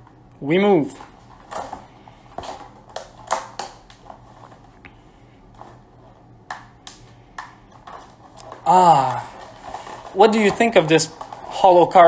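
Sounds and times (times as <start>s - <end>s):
plastic packaging crackling: 7.6s - 12.0s.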